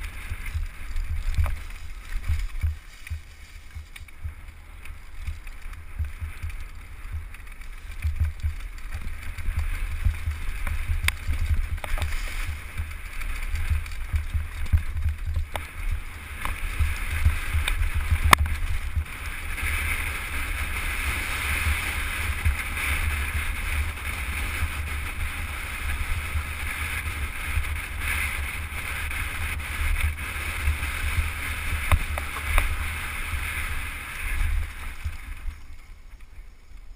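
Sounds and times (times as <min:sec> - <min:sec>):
bike rattling and rolling: 0:00.0 - 0:36.9
wind buffeting microphone: 0:00.0 - 0:36.9.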